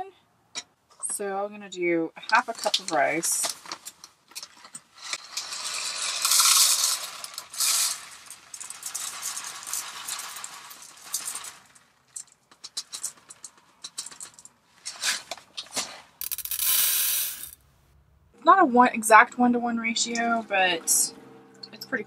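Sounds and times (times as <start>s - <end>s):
rice grains pouring into cup: 5.2s - 11.8s, 16.2s - 17.6s.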